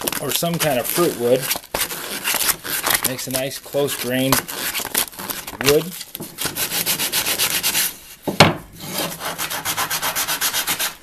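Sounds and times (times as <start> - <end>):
sandpaper rasping on wood: 0.5 - 8.0, 8.8 - 11.0.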